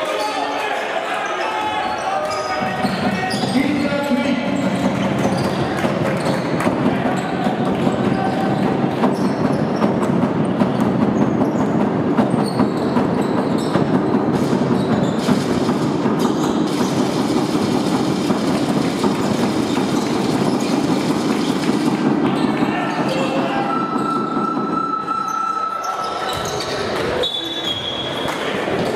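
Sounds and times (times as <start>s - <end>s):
arena crowd din: 0.0s - 16.2s, 18.1s - 28.9s
sneaker squeaks: 1.2s - 15.5s, 19.2s - 28.4s
basketball bouncing: 4.4s - 23.4s.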